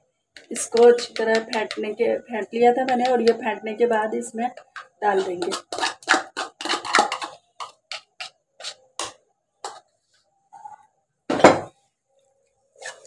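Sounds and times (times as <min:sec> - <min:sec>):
spatula knocking on plastic cup: 0:00.7 - 0:01.8, 0:02.8 - 0:03.4.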